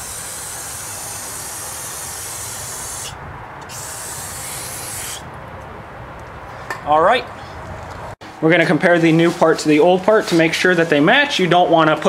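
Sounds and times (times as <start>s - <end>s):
aerosol spray jet: 0.0s - 5.2s.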